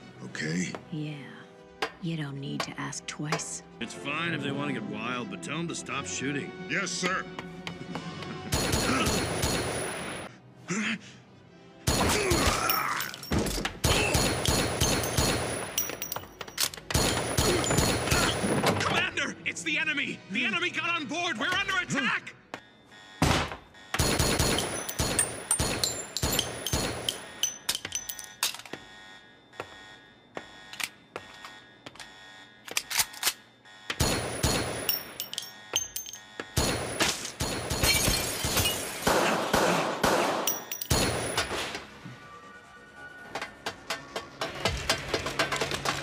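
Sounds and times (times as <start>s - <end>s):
rapid pistol gunfire: 8.5s - 10.0s, 13.8s - 15.8s, 24.0s - 27.2s, 34.0s - 34.9s, 36.6s - 41.6s
metallic clicks of pistol reloading: 15.8s - 17.0s, 24.5s - 28.7s, 32.7s - 33.4s.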